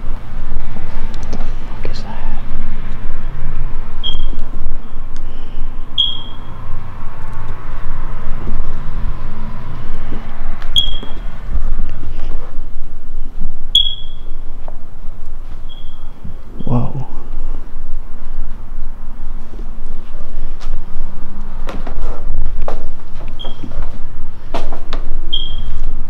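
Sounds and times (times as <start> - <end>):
steady low rumble: 0.0 - 26.0.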